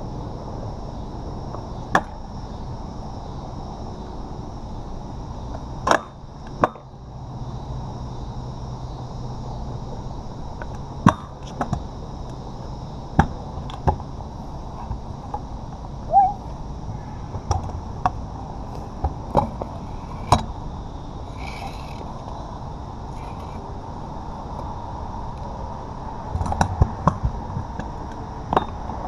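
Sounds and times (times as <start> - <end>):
scooter deck clacking on pavement: 5.8 - 6.8, 10.6 - 11.8, 17.4 - 20.5
scooter wheels rolling on asphalt: 17.4 - 29.0.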